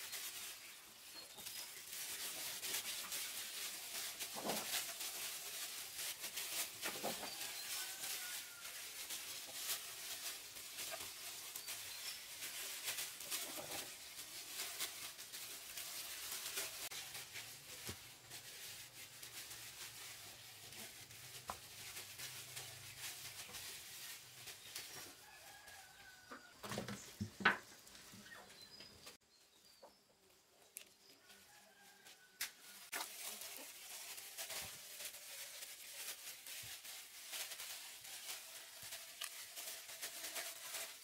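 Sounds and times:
farm birds calling faintly: 0.0 - 36.3
small clicks and rustles: 30.7 - 41.0.

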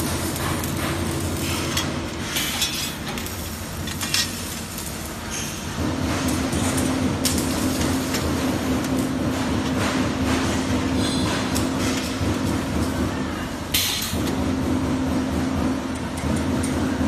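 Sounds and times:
welding arc crackling: 0.0 - 13.1
steady machine hum: 0.0 - 17.0.

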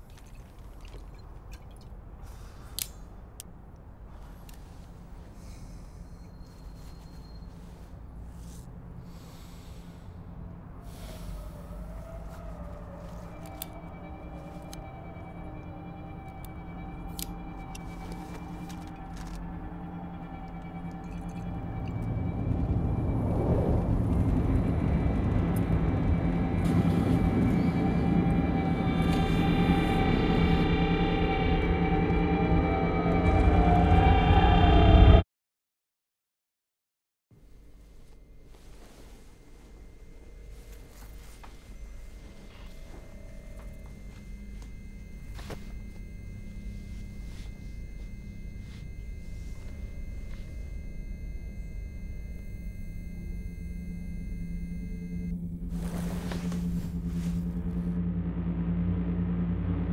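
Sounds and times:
faint hum of steady tones: 0.0 - 31.7, 37.4 - 57.9
low steady drone: 0.2 - 35.2, 37.4 - 59.9
hand brushing across bedspread: 45.3 - 46.0, 46.7 - 48.8, 55.7 - 57.7.

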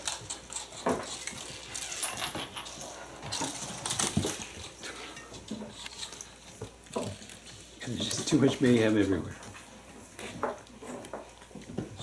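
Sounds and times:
toys clattering on hardwood floor: 0.8 - 4.6.

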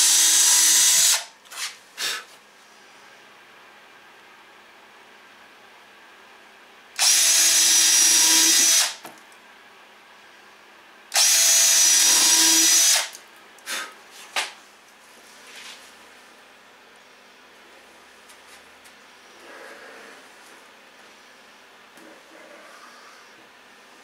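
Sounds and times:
cordless drill drilling into wood: 0.0 - 1.3, 7.0 - 9.0, 11.1 - 13.1.

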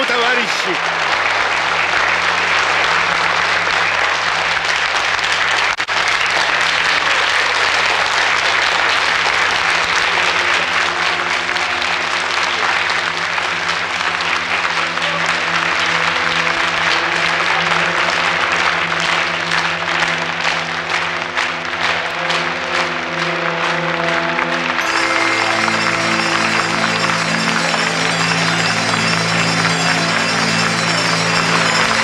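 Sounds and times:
audience applauding: 0.0 - 32.0
low musical chords: 10.1 - 32.0.

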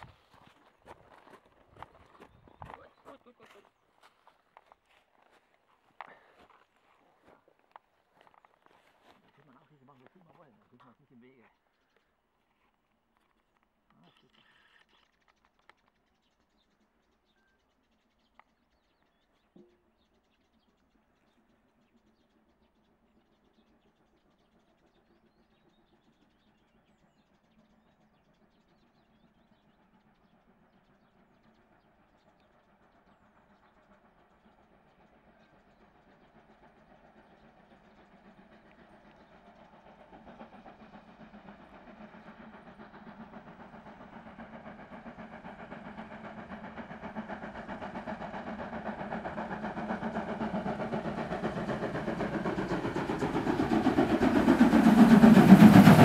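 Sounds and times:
steam train exhaust beats: 16.2 - 56.0.

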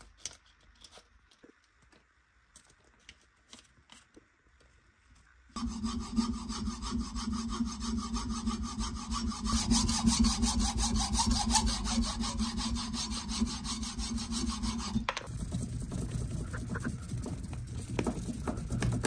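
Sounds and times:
hacksaw cutting wood: 5.6 - 15.6.

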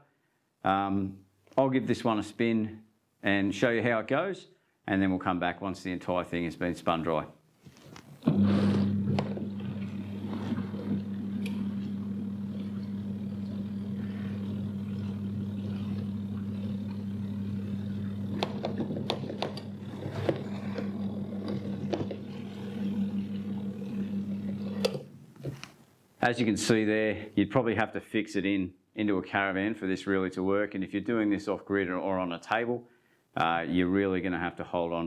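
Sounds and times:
washing machine motor humming: 8.2 - 25.3.

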